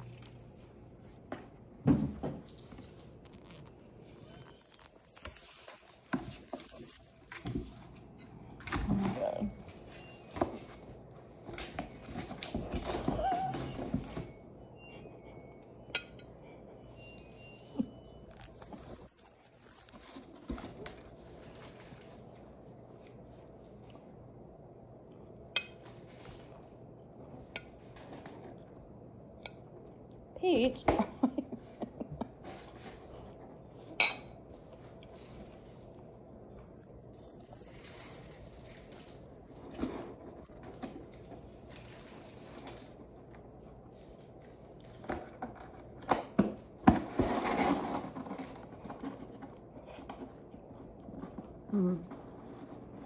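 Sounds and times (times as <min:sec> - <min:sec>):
cats rustling a cardboard box: 0:00.0 - 0:14.5, 0:17.0 - 0:23.7, 0:37.6 - 0:53.0.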